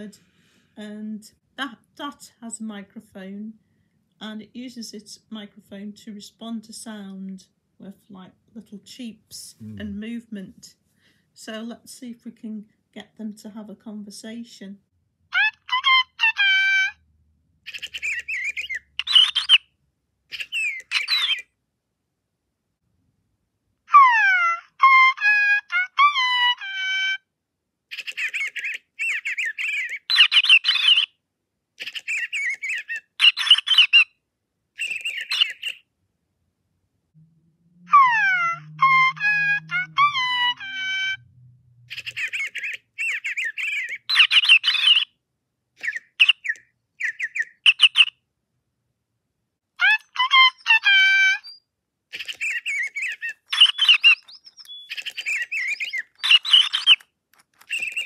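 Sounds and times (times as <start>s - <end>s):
toy birds electronic chirps: 17.7s - 19.6s, 20.4s - 21.4s, 27.9s - 31.1s, 31.8s - 34.0s, 34.8s - 35.8s, 37.9s - 41.2s, 41.9s - 45.1s, 45.8s - 48.1s, 49.8s - 57.0s, 57.6s - 58.0s.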